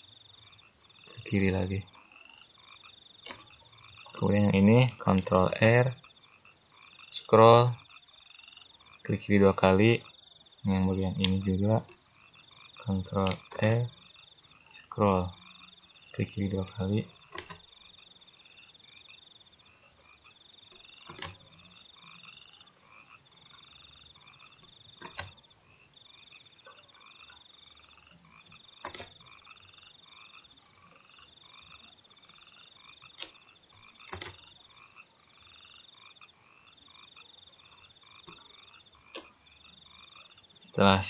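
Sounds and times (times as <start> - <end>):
frogs and insects calling: 0.0 - 41.0
mouse clicks: 11.2 - 11.5, 21.0 - 21.4, 28.4 - 29.2.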